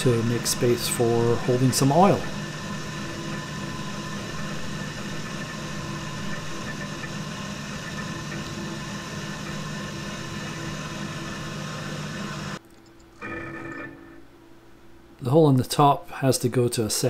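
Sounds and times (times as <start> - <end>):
milling machine drilling metal: 0.0 - 12.6.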